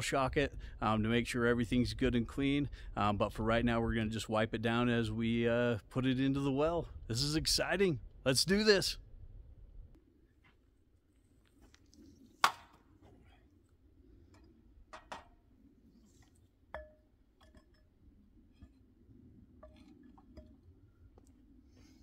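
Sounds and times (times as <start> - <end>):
hose knocking on well casing: 14.9 - 15.4.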